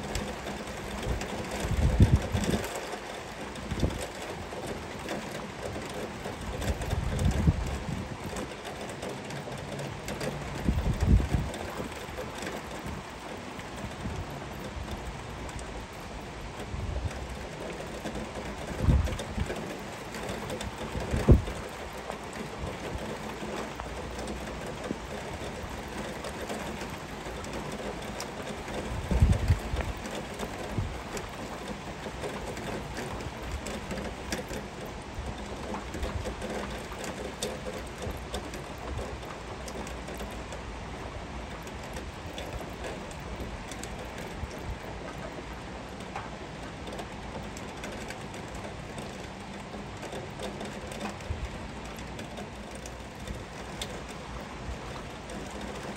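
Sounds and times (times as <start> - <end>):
heavy rain falling: 0.0 - 55.9.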